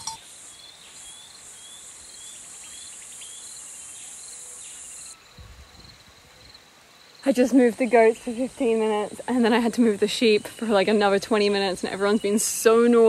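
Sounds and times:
short insect chirp: 0:00.0 - 0:07.3.

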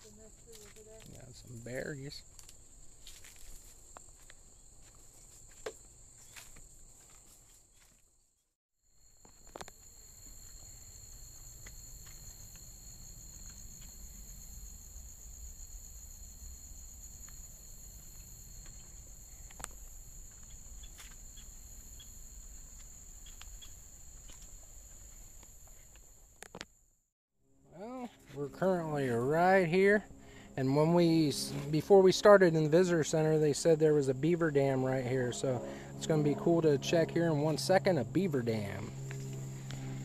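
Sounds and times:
insects trilling: 0:00.0 - 0:07.9, 0:08.9 - 0:26.6, 0:27.8 - 0:40.0.

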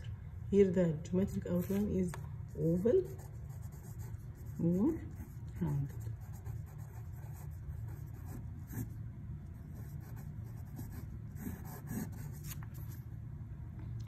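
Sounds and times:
steady low hum: 0:00.0 - 0:14.0
pencil scratching on paper: 0:02.5 - 0:09.0, 0:09.7 - 0:12.9.

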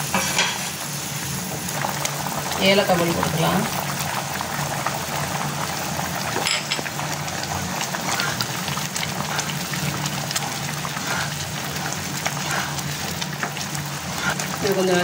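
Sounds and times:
water boiling and bubbling: 0:00.0 - 0:15.0
wooden spatula stirring: 0:07.8 - 0:15.0.

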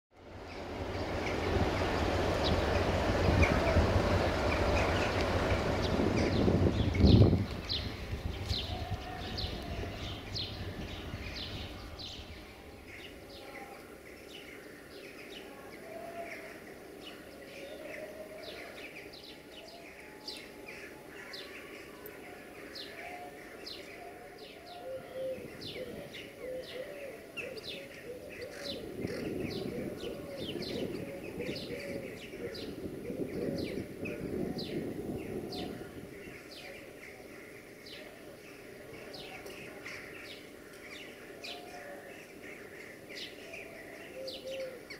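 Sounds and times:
low swelling sound: 0:00.2 - 0:13.3
small birds chirping: 0:00.3 - 0:44.9.

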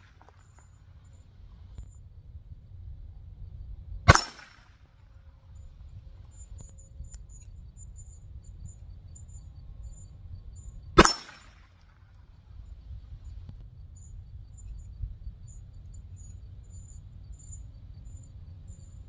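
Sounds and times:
handgun shots: 0:04.1 - 0:04.7, 0:11.0 - 0:11.7.

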